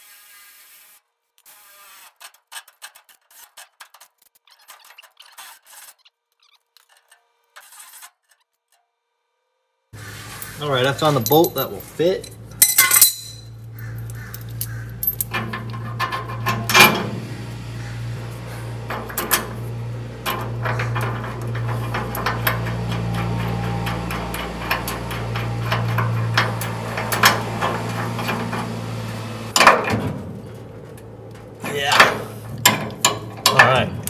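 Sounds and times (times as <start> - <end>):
steady low hum: 10.0 - 34.0
metal clinks: 10.3 - 17.0.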